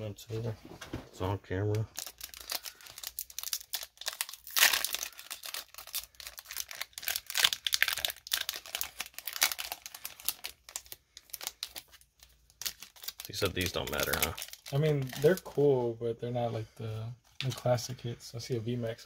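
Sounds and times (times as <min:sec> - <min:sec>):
foil wrapper crinkling: 0:01.8 - 0:15.7.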